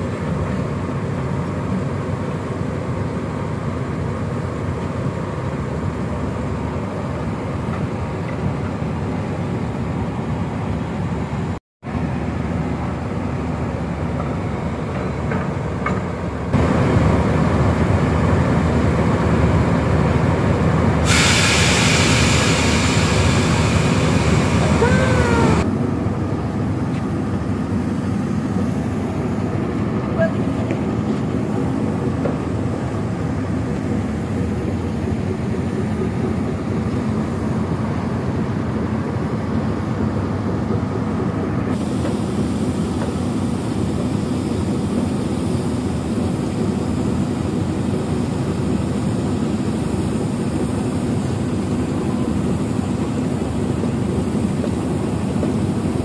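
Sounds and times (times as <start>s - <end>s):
boat engine droning: 16.6s - 30.7s.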